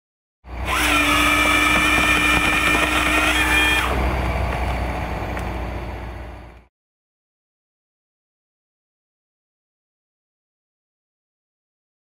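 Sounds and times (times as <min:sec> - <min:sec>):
power tool motor whining: 0:00.6 - 0:04.0.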